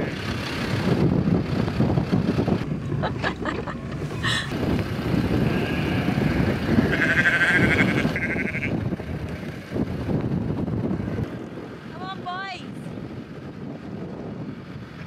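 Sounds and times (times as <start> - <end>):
steady low rumble: 0.0 - 15.0
sheep bleating: 5.4 - 8.8.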